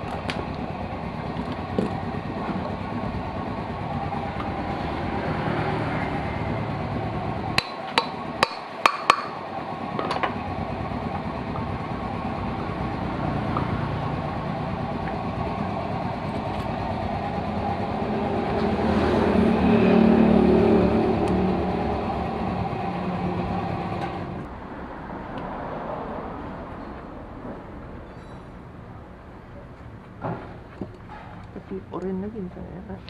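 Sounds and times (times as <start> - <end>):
engine running: 0.0 - 33.0
sharp metallic knocks: 7.6 - 9.4.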